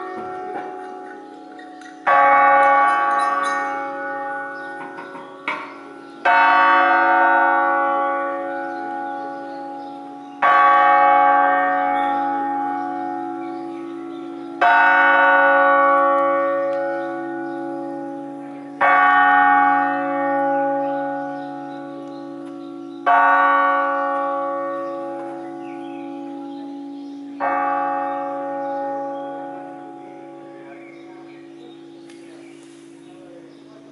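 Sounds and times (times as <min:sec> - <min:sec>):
church bell ringing: 0:00.0 - 0:33.9.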